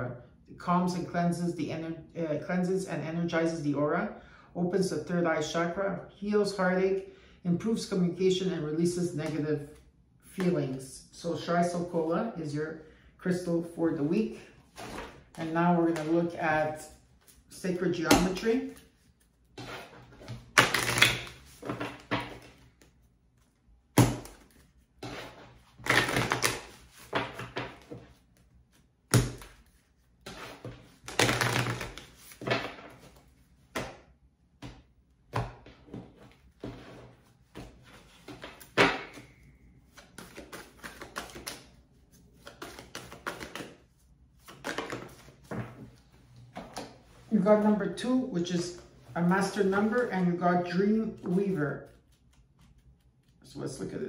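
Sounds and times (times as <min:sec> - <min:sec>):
cards being shuffled: 0:18.1 - 0:34.0, 0:35.4 - 0:46.0
sharp card slaps: 0:24.0 - 0:24.6, 0:29.1 - 0:29.6.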